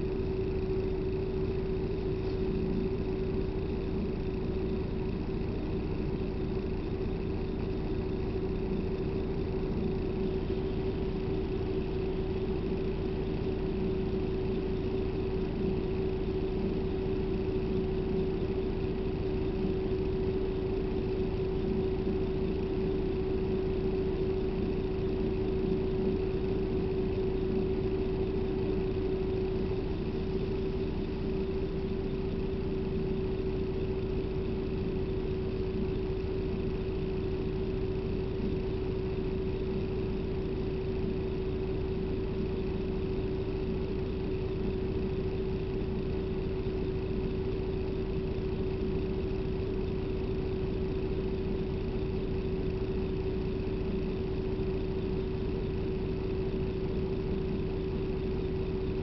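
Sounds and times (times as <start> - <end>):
bus engine and cabin drone: 0.0 - 41.2.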